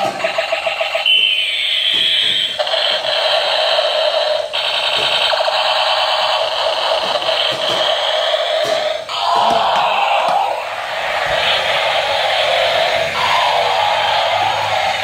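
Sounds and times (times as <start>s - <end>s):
rapidly warbling electronic buzz: 0.0s - 15.0s
fast pulsing electronic beep: 0.9s - 3.3s
falling siren-like sweep: 9.1s - 15.0s.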